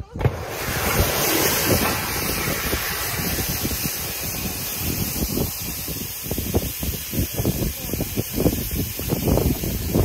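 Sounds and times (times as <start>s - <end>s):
gas cylinder hissing: 0.0s - 10.0s.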